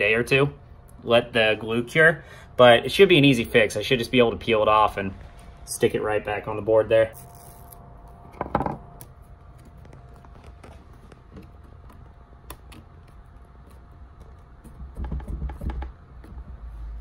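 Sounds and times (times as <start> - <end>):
faint steady hum: 0.0 - 17.0
fingers clicking and rubbing foam: 9.4 - 16.8.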